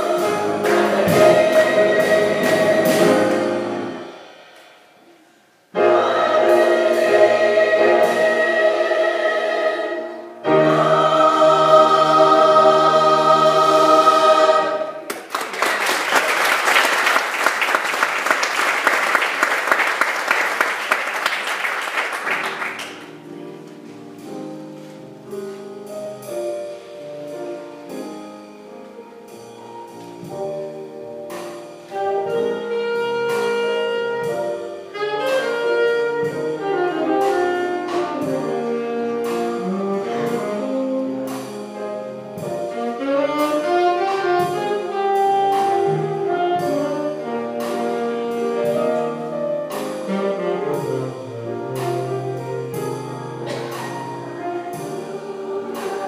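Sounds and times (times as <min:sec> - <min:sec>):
choir singing a held chord: 0:00.0 - 0:04.5, 0:05.7 - 0:15.1, 0:53.4 - 0:56.0
piano and saxophone: 0:00.0 - 0:56.0
audience applause: 0:15.1 - 0:23.0.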